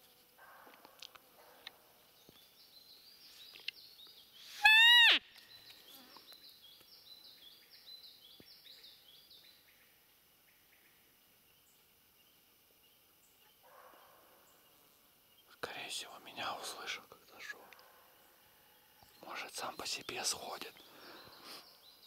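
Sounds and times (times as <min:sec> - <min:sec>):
songbird singing high notes: 0:04.4 - 0:05.5
deer whistle call: 0:04.6 - 0:05.2.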